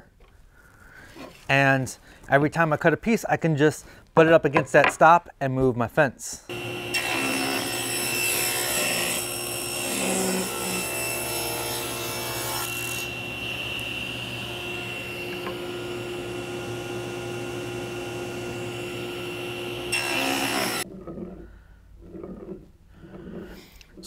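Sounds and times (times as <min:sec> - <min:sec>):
table saw cutting wood: 0:06.5 - 0:20.8.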